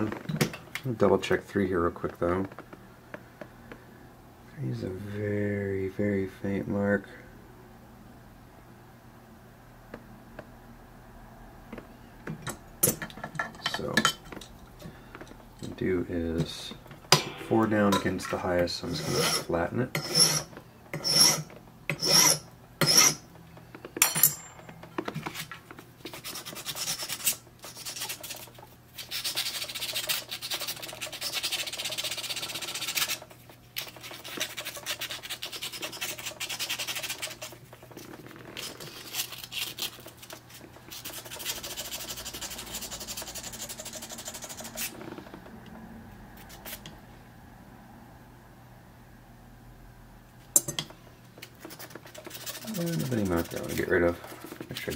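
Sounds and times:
hand file rasping on metal key: 0:18.8 - 0:23.2
key rubbing on abrasive paper: 0:26.1 - 0:45.0, 0:51.6 - 0:54.9.

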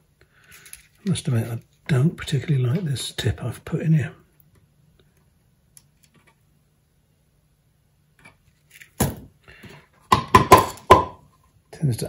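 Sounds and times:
knocks and clatters on wooden workbench: 0:10.1 - 0:11.2.

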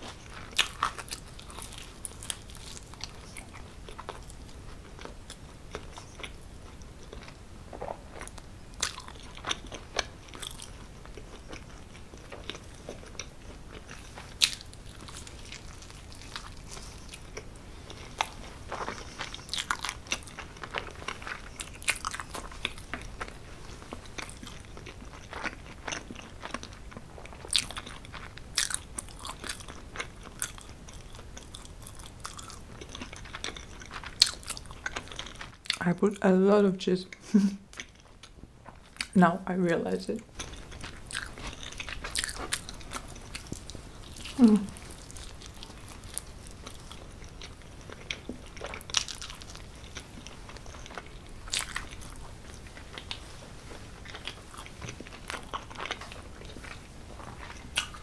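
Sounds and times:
person chewing pizza: 0:00.0 - 0:35.8, 0:37.1 - 0:39.2, 0:40.3 - 0:58.0.

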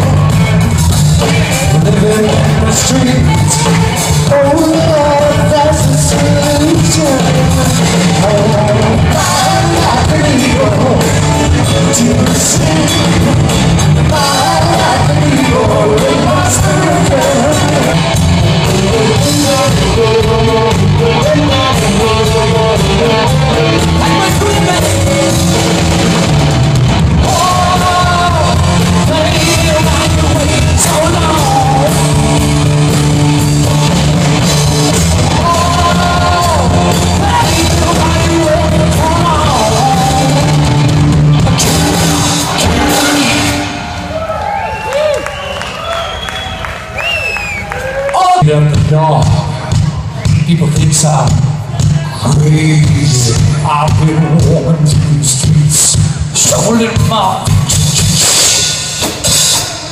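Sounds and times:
live rock band playing: 0:00.0 - 0:47.0, 0:47.6 - 0:59.9
person singing lead: 0:01.2 - 0:26.3, 0:27.2 - 0:40.9.

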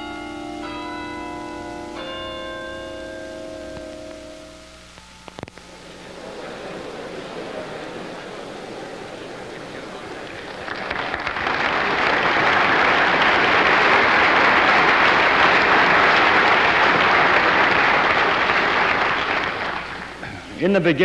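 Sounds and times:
audience applauding: 0:05.6 - 0:21.0.

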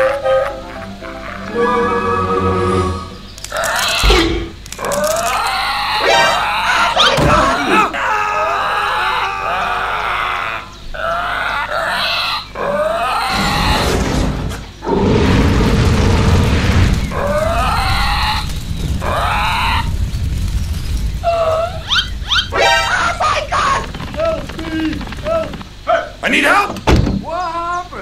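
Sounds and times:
dinosaur growls and roars: 0:09.5 - 0:26.2
fire and explosion rumble: 0:13.3 - 0:27.2.

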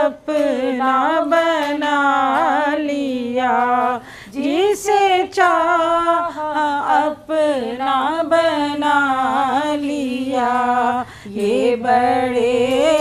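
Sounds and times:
person singing unaccompanied: 0:00.0 - 0:13.0
breaths between phrases: 0:04.0 - 0:04.3, 0:11.0 - 0:11.3.

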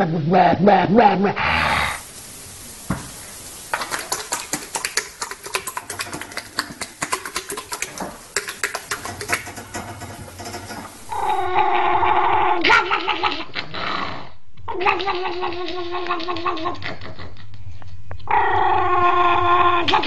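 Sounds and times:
horse flapping its lips: 0:03.7 - 0:11.0
dog howling: 0:11.1 - 0:12.9.

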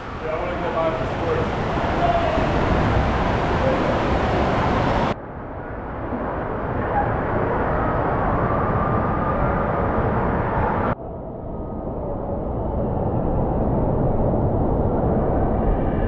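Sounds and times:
rushing water park hall noise: 0:00.0 - 0:05.2.

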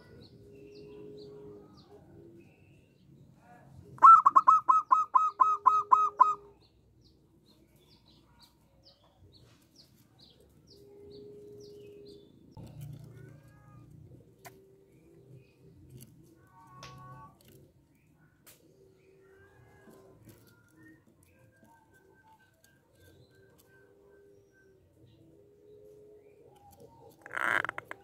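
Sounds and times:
small birds chirping: 0:00.0 - 0:03.4, 0:04.0 - 0:28.0
dove calling: 0:03.9 - 0:06.7, 0:18.6 - 0:28.0.

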